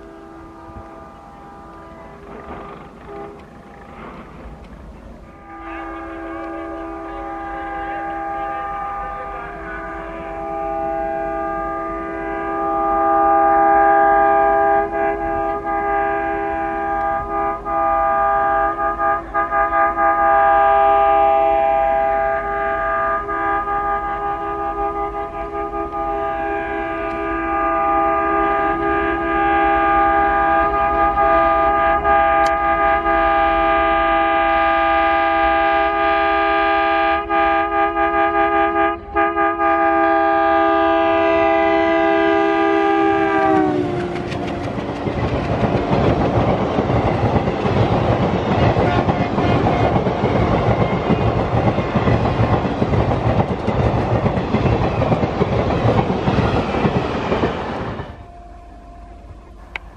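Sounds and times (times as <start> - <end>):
diesel locomotive passing: 0.0 - 59.9
locomotive horn: 0.0 - 59.9
train wheels clattering on rails: 1.7 - 5.4, 42.3 - 58.2.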